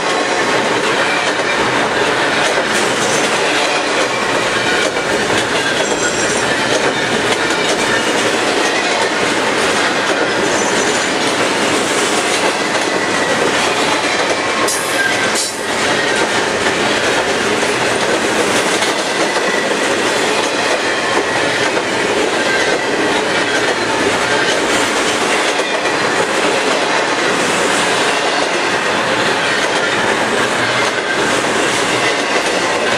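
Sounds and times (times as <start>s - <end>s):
freight train wheels clattering: 0.0s - 32.9s.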